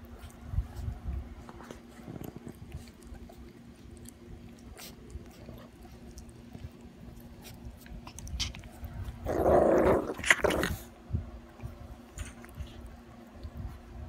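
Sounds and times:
dog licking: 1.5s - 9.0s.

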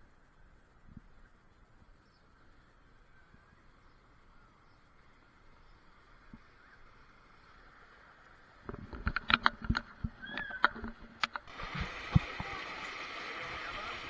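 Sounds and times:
sharp knocks and clicks: 8.7s - 11.5s
water rushing into a tube: 11.5s - 14.0s.

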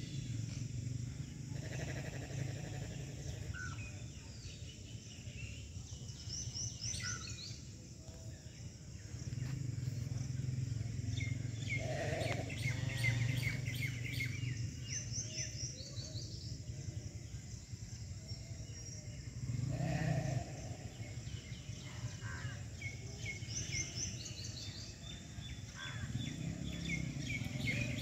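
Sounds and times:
small birds chirping: 0.0s - 28.0s
lower bird call: 1.5s - 4.0s, 10.0s - 16.4s.

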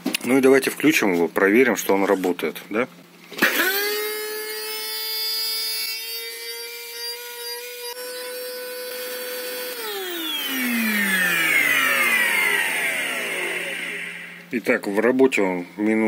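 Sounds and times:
vacuum cleaner motor whining: 7.9s - 14.5s.

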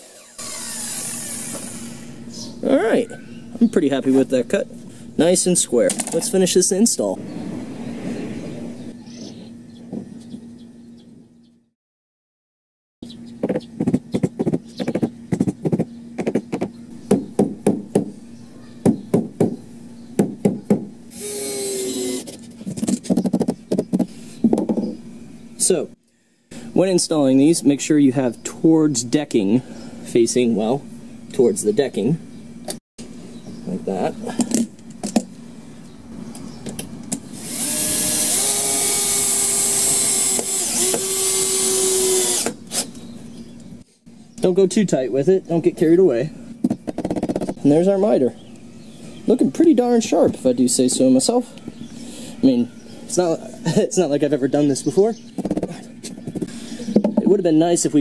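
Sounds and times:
cordless drill driving a screw: 0.0s - 2.2s, 21.1s - 22.4s, 37.4s - 43.0s
knocks on deck boards: 18.8s - 19.6s, 20.2s - 20.9s.

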